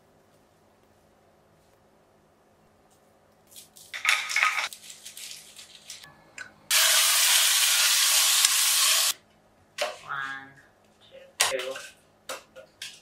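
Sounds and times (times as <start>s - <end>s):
foil rustling and crinkling: 3.4s - 6.1s
meat sizzling in a pan: 6.7s - 9.2s.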